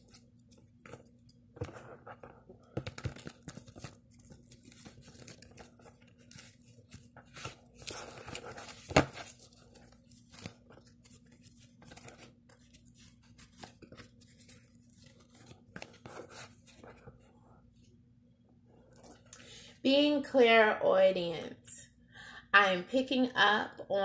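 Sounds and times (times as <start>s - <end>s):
cards and plastic holders rustling: 0.0s - 17.9s
faint steady hum: 0.0s - 24.0s.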